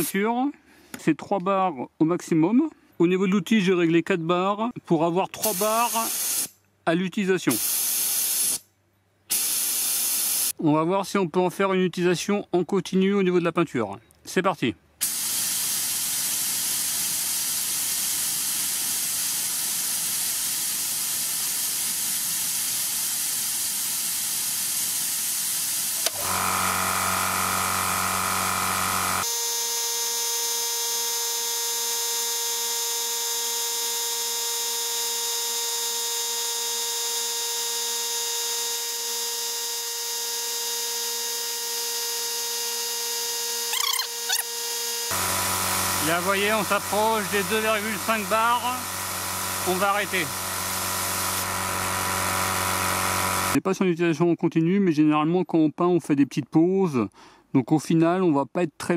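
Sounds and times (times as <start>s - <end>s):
spray gun air hiss: 5.4s - 6.5s, 7.5s - 8.6s, 9.3s - 10.5s, 15.0s - 29.3s, 45.1s - 53.6s
compressor motor humming: 25.4s - 53.6s.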